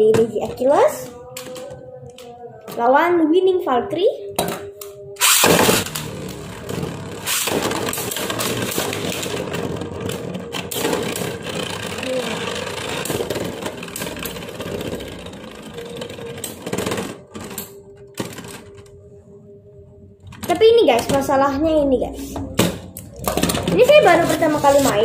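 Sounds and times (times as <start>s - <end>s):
spinning tops clattering: 5.2s - 16.7s
spinning tops whirring: 5.2s - 17.4s.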